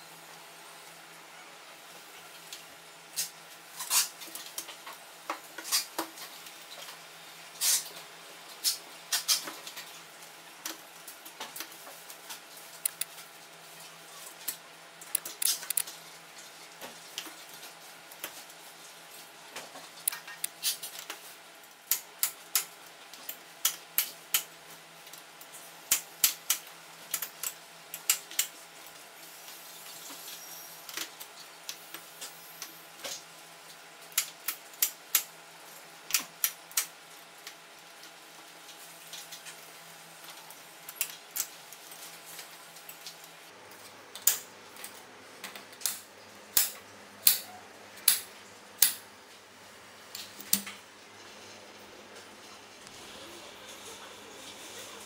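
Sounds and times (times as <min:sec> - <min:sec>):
clips clicking: 0:12.8 - 0:13.1.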